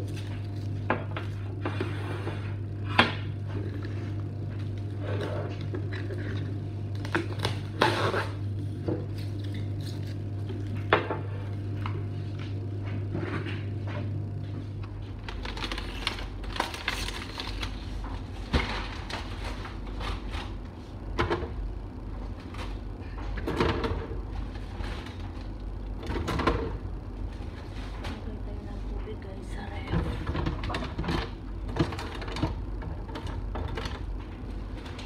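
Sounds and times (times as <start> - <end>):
steady low hum: 0.0 - 35.0
plastic shrink-wrap crinkling: 15.2 - 20.2.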